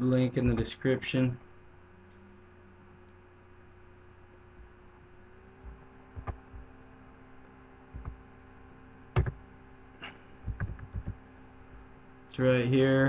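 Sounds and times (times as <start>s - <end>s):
electrical hum: 0.0s - 13.0s
mouse and keyboard clicks: 10.5s - 11.2s.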